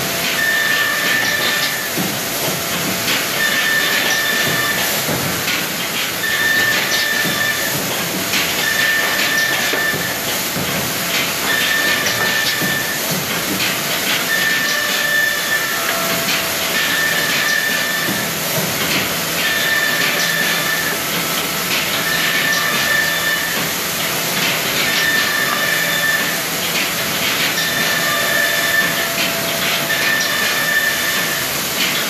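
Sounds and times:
woodworking machine hissing: 0:27.5 - 0:31.9.

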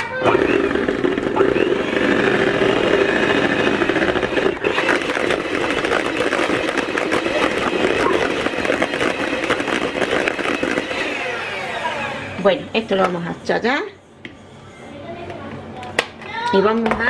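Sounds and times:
electric hand mixer whisking: 0:00.0 - 0:12.9.

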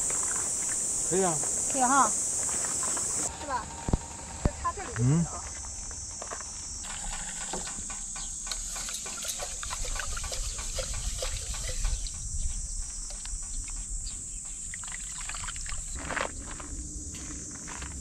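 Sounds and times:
rinse water pouring: 0:08.5 - 0:12.2
water sloshing: 0:08.6 - 0:12.2, 0:14.6 - 0:16.2.

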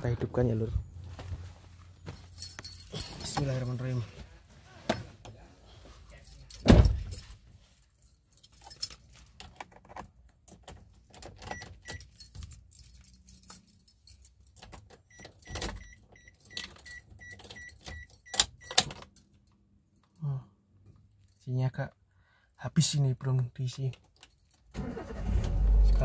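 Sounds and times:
car keys jangling: 0:02.1 - 0:04.1, 0:06.1 - 0:20.2, 0:23.6 - 0:26.0.

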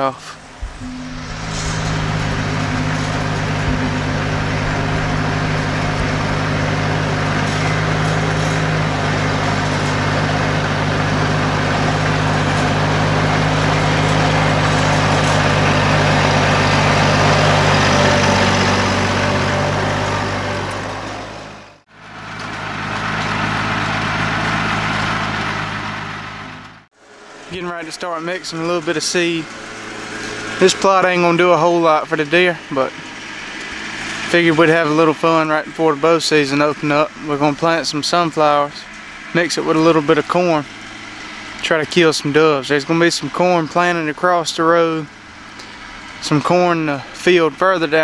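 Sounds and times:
tractor engine running: 0:00.0 - 0:48.0.

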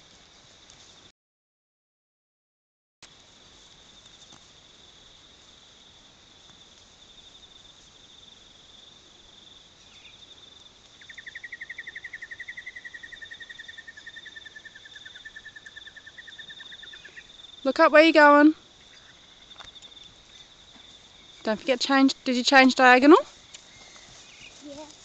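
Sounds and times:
lower pulsing insect trill: 0:03.1 - 0:25.0.

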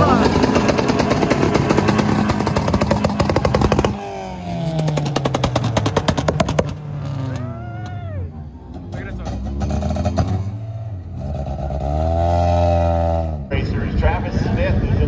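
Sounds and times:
race car engine revving: 0:00.0 - 0:15.0
exhaust pops: 0:00.1 - 0:04.0, 0:04.6 - 0:08.0.

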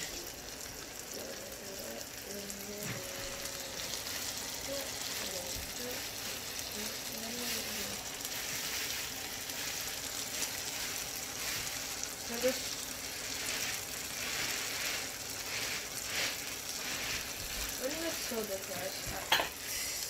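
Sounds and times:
food sizzling in a skillet: 0:00.0 - 0:20.0.

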